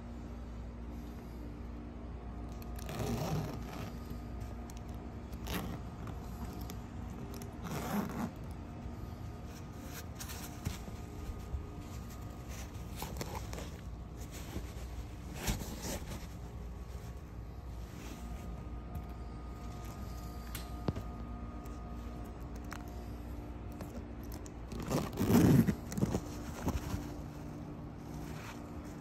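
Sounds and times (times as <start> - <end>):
steady low hum: 0.0 - 29.0
bag rustling and scraping: 2.6 - 20.9, 23.8 - 29.0
metal zipper rasps: 2.8 - 4.1, 5.3 - 6.1, 7.2 - 8.5, 24.7 - 26.3.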